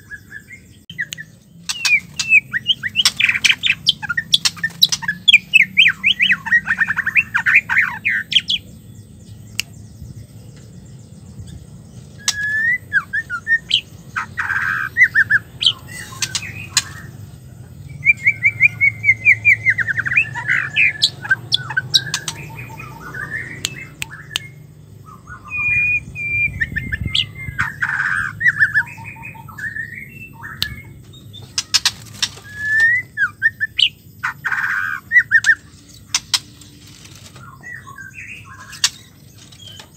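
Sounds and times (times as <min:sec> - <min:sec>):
bird rattling chirps and whistles: 0:01.7 - 0:05.5, 0:31.5 - 0:33.6
sharp clicks: 0:35.4 - 0:37.4, 0:38.7 - 0:39.9.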